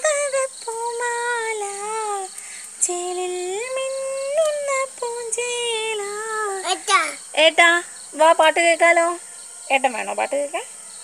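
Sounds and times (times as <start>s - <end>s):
woman singing: 0.0s - 6.7s.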